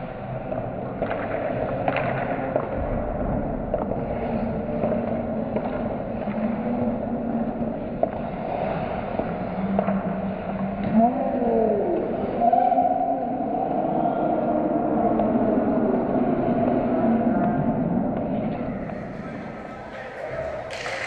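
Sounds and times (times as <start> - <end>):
hockey sticks and puck clacking: 0.1 - 11.0, 18.2 - 21.0.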